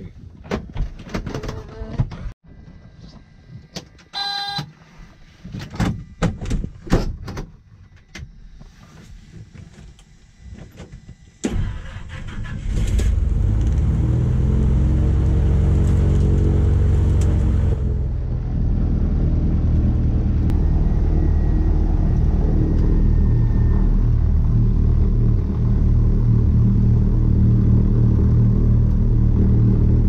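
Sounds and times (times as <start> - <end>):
propeller engine in cabin: 12.7 - 30.0.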